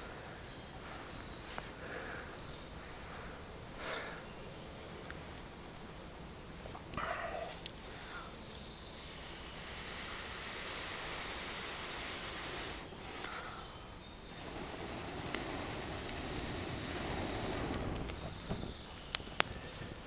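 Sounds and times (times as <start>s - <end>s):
person blowing steady breaths: 0.0s - 4.4s, 6.5s - 20.0s.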